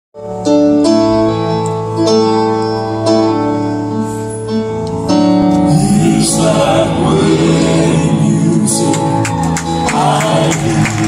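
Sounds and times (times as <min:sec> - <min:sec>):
grand piano chords: 0:00.2 - 0:11.0
male quartet singing in harmony: 0:05.6 - 0:11.0.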